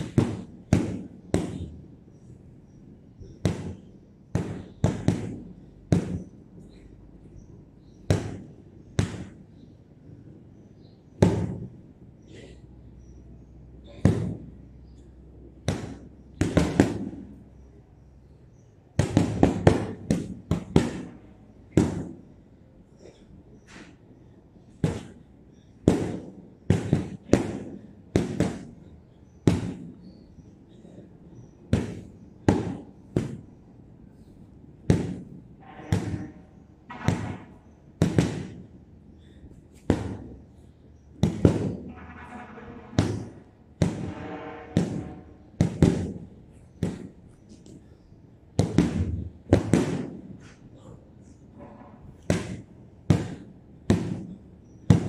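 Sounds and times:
punches thudding on heavy bag: 0.0 - 1.7, 8.1 - 9.4, 24.8 - 25.2, 25.9 - 28.7, 36.9 - 38.6, 39.2 - 40.4, 41.2 - 41.9, 52.2 - 55.0.

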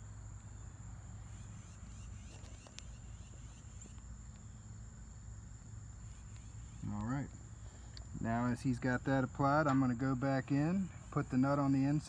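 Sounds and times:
high-pitched insect trill: 0.0 - 12.0.

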